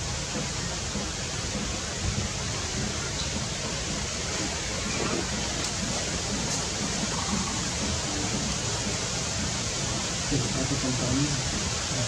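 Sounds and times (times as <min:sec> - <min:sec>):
steady rushing outdoor noise: 0:00.0 - 0:12.0.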